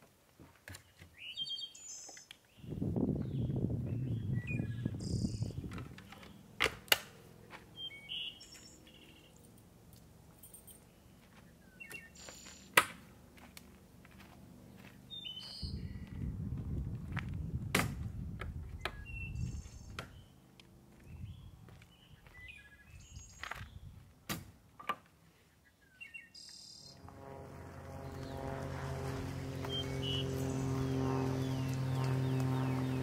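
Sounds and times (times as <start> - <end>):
small birds chirping: 0.8 - 6.5, 7.7 - 9.5, 10.9 - 12.8, 14.7 - 16.2, 18.8 - 24.0, 25.4 - 27.0, 29.5 - 33.0
low rumbling noise: 26.9 - 33.0.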